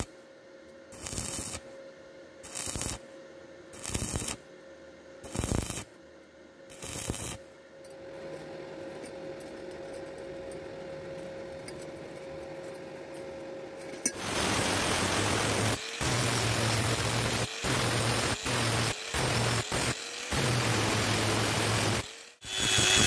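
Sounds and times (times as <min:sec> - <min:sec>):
welding arc crackle: 0:00.9 - 0:01.7, 0:02.4 - 0:03.0, 0:03.8 - 0:04.4, 0:05.2 - 0:05.9, 0:06.7 - 0:07.4, 0:14.2 - 0:23.0
angle grinder grinding steel: 0:14.1 - 0:23.0.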